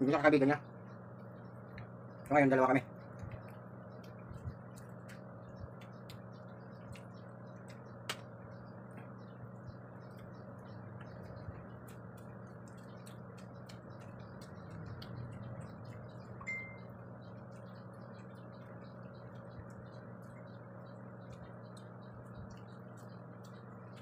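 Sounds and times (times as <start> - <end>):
steady low hum: 0.0 - 24.0
chewing and finger clicks: 3.0 - 24.0
thin beep-like tone: 16.4 - 16.8.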